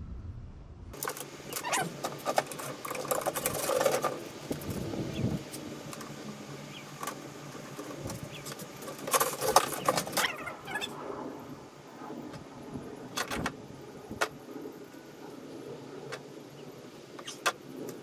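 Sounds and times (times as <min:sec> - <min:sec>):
small parts clicking and clattering: 0:01.0 - 0:04.8, 0:07.0 - 0:10.4
wires rustling: 0:01.0 - 0:06.2, 0:06.9 - 0:10.7.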